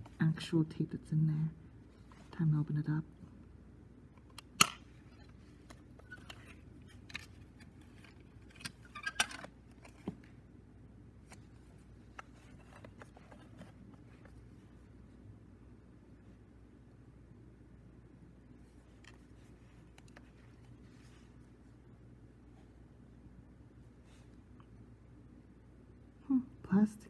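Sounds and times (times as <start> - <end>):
plastic cassette case clicks: 4.2 - 4.9.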